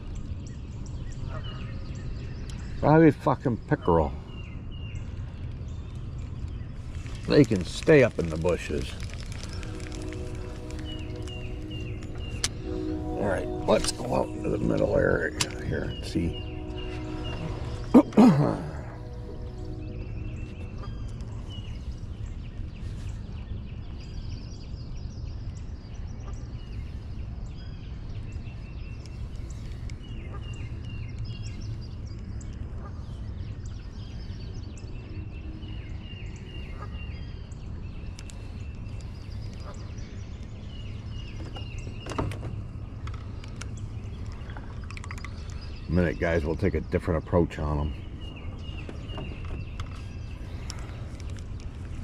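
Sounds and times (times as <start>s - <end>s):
birds chirping: 0.0s - 52.0s
electric boat motor humming: 7.0s - 22.0s.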